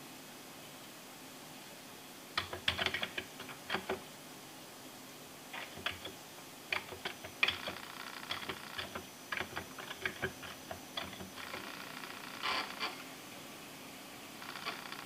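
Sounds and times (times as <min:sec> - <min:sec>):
computer keys clicking: 0:02.4 - 0:04.0, 0:05.6 - 0:11.6
disk drive clicks: 0:02.4 - 0:04.0, 0:05.6 - 0:11.6
floppy disk drive whirring: 0:02.4 - 0:04.0, 0:05.5 - 0:13.0.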